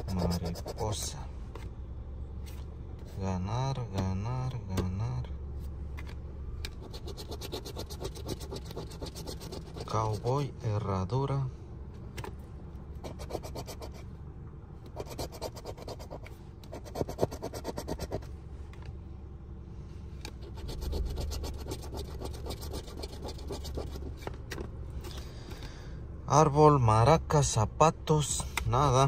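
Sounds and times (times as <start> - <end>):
coin scratching ticket: 0.0 - 1.0, 6.8 - 10.3, 13.0 - 14.0, 15.0 - 18.2, 20.4 - 24.2.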